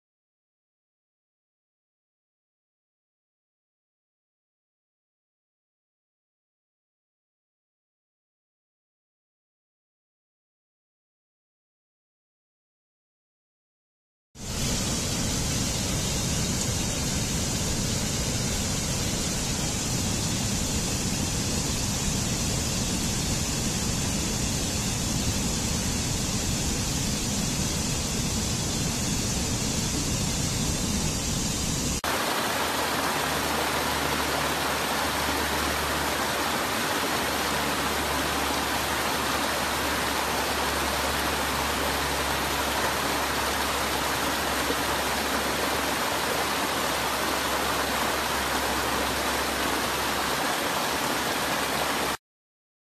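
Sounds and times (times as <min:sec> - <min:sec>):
water splashing over cascades: 0:14.4 - 0:52.2
stream rushing over rocks: 0:31.9 - 0:52.2.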